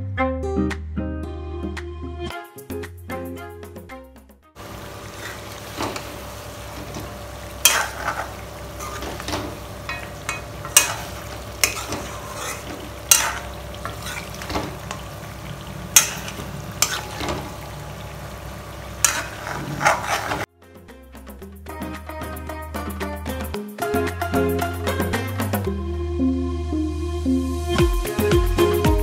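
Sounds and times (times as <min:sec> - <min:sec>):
curry sizzling in a pan: 0:04.6 - 0:20.5
ladle clinking and scraping pan: 0:05.0 - 0:17.8, 0:19.0 - 0:20.5.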